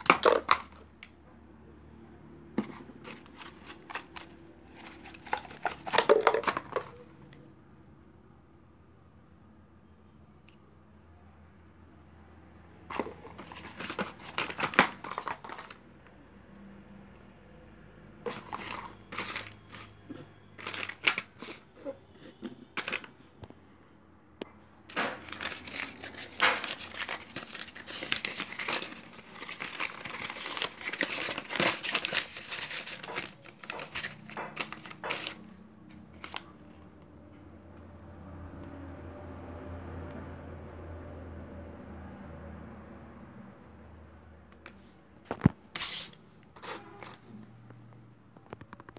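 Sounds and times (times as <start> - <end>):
plastic and paper packaging crinkling: 0.0 - 0.8, 2.6 - 7.1, 12.9 - 15.8, 18.2 - 23.2, 24.9 - 36.9, 45.3 - 47.3.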